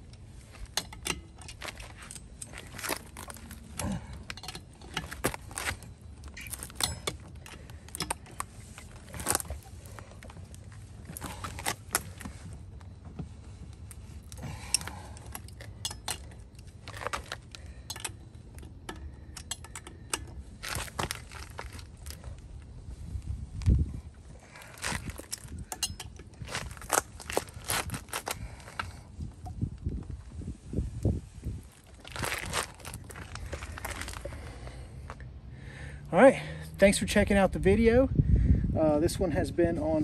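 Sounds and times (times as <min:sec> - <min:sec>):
metallic clinks of tool on nuts: 0:00.6 - 0:09.5, 0:14.7 - 0:20.8, 0:25.1 - 0:26.3.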